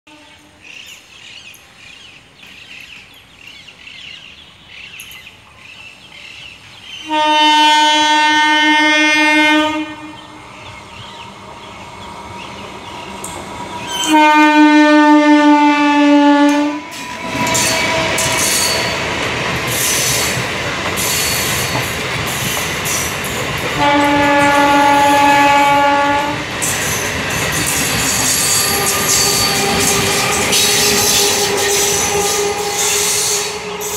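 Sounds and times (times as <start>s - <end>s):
train horn blasts: 0.1s - 0.7s, 7.0s - 11.7s, 12.4s - 19.0s, 23.8s - 26.5s, 28.3s - 33.9s
train wheels rumbling on track: 0.4s - 33.9s.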